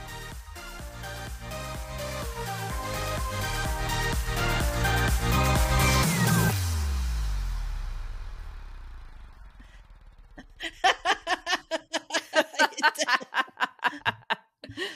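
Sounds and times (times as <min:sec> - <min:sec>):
electronic music: 0:00.0 - 0:09.5
woman laughing: 0:10.4 - 0:14.9.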